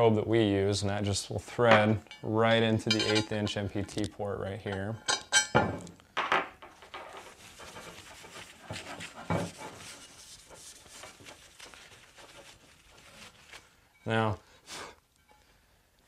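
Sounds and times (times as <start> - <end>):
handling knocks and rustles: 1.6 - 4.1, 4.8 - 13.8.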